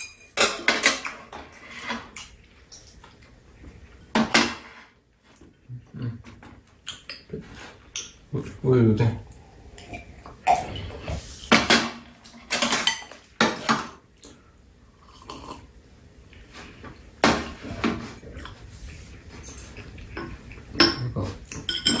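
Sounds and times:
tableware clinking: 0:00.0 - 0:02.0, 0:19.4 - 0:22.0.

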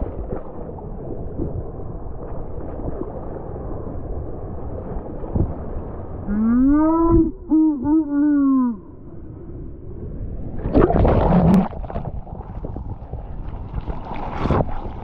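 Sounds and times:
ocean water splashing: 0:10.2 - 0:15.0
wind on microphone: 0:10.5 - 0:15.0.

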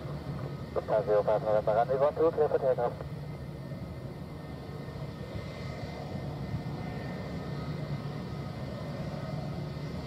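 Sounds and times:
jet engines low rumble: 0:00.0 - 0:10.0.

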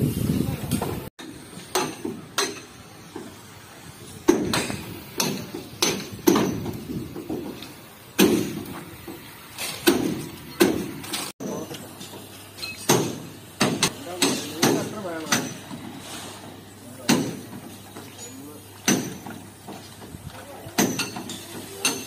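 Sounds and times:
hammer blows on sheet metal: 0:04.2 - 0:12.3, 0:12.9 - 0:17.7, 0:18.8 - 0:22.0.

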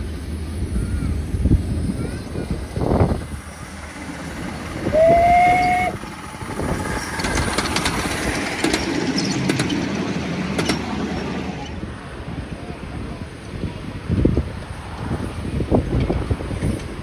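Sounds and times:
carriage wheels clicking on rails: 0:03.8 - 0:11.0
steam locomotive whistle: 0:04.8 - 0:06.0.

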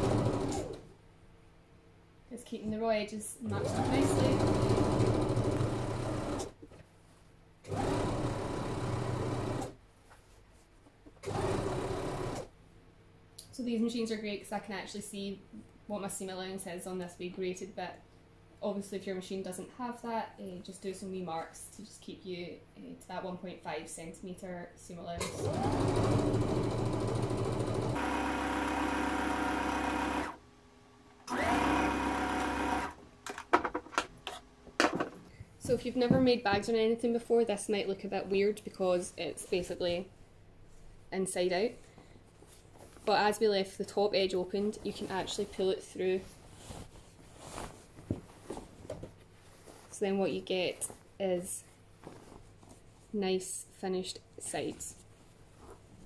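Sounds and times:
sewing machine stitching: 0:00.0 - 0:00.8, 0:03.5 - 0:06.6, 0:07.7 - 0:09.8, 0:11.2 - 0:12.5, 0:25.2 - 0:30.4, 0:31.3 - 0:33.0.

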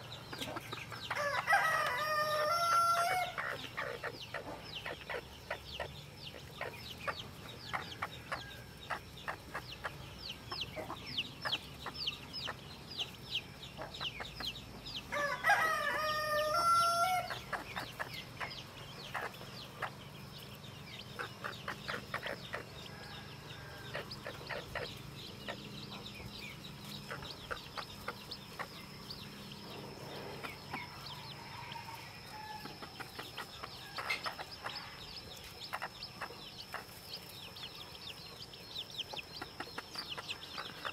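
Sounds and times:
chicks peeping: 0:00.0 - 0:40.9
rooster crowing: 0:01.1 - 0:03.5, 0:15.1 - 0:17.4, 0:30.8 - 0:32.8.

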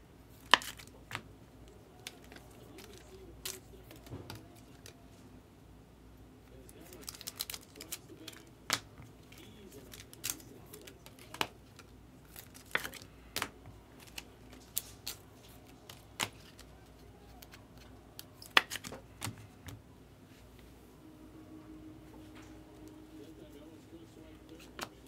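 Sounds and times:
trading cards clicking and snapping: 0:00.4 - 0:01.3, 0:02.0 - 0:05.0, 0:06.7 - 0:19.8, 0:24.5 - 0:25.0.

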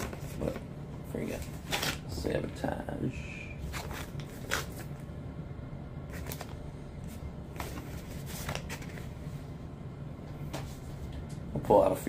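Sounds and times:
plastic sleeve rustling: 0:03.6 - 0:05.0, 0:06.1 - 0:09.3.

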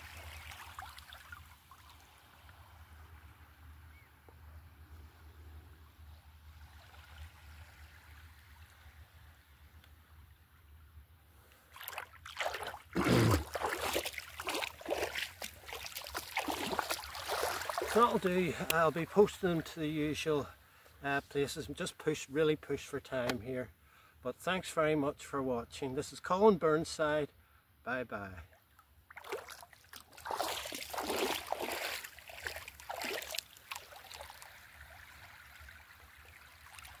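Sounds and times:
small waves lapping at shore: 0:00.0 - 0:04.1, 0:11.7 - 0:19.3, 0:29.1 - 0:37.0
seawater splashing: 0:11.7 - 0:19.4, 0:29.1 - 0:37.0.

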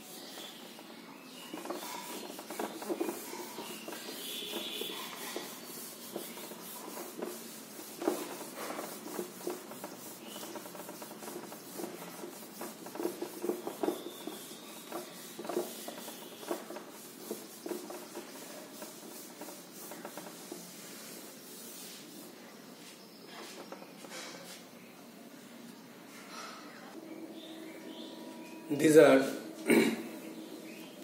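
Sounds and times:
eraser scrubbing a whiteboard: 0:00.0 - 0:24.6.

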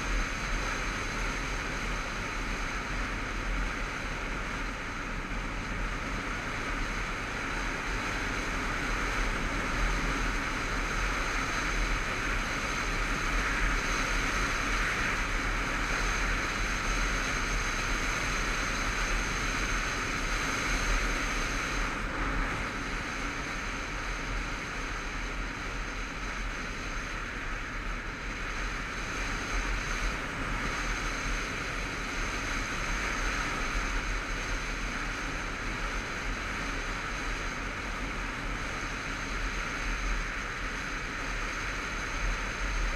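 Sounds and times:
motorcycle engine running: 0:00.0 - 0:42.9.

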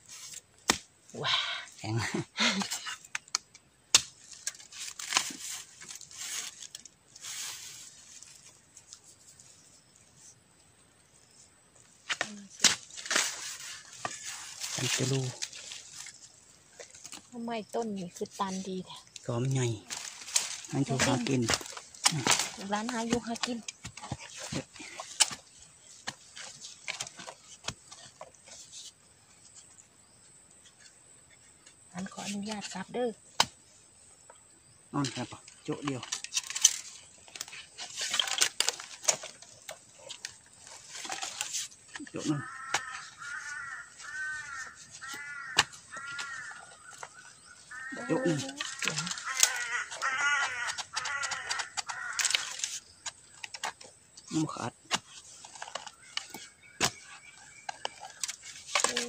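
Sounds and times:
dry bamboo leaves rustling: 0:00.0 - 0:10.4, 0:11.0 - 0:29.9, 0:35.0 - 0:59.0
blade chopping bamboo: 0:00.7 - 0:00.9.

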